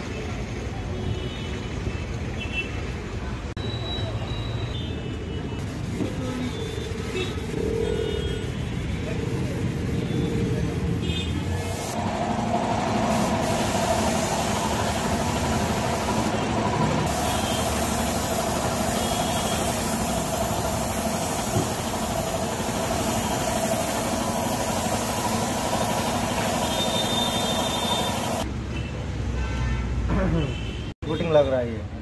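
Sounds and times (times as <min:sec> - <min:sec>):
paint spray gun hissing: 0:05.6 - 0:07.8, 0:11.6 - 0:28.5.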